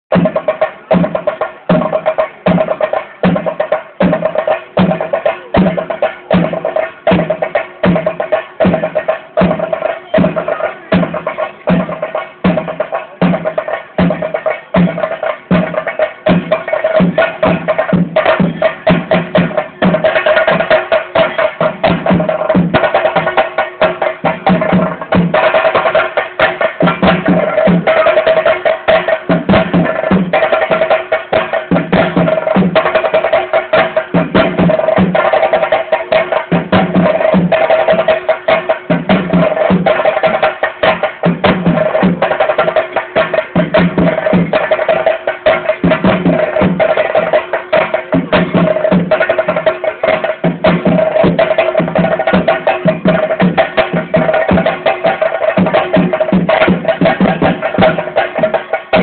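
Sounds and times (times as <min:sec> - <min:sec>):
ritual drumming: 0:00.1 - 0:59.0.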